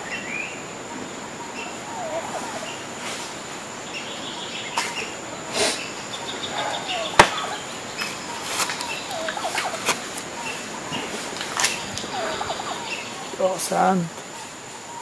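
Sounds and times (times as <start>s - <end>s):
birds chirping: 0.0s - 15.0s
sharp knock: 7.2s - 7.4s.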